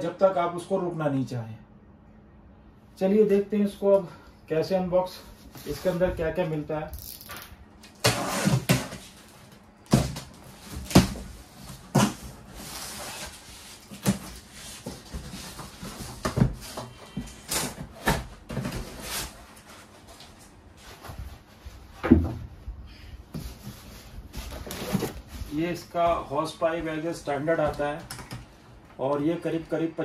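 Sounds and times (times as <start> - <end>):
cardboard thumps and knocks: 9.9 - 12.4, 14.0 - 18.9, 22.0 - 22.5.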